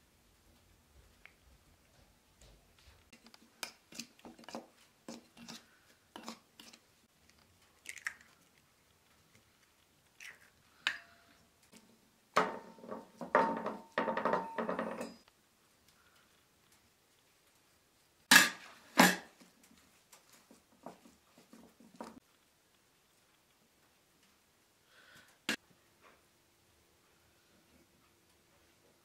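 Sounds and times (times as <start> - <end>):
kitchen clatter: 12.4 - 15.3, 18.3 - 19.4
metal bowl ringing: 13.8 - 15.2.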